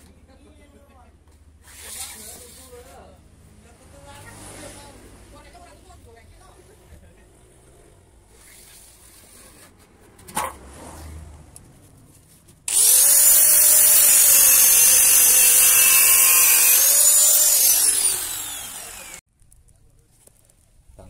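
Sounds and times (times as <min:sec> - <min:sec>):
angle grinder grinding metal: 0:12.7 - 0:19.2.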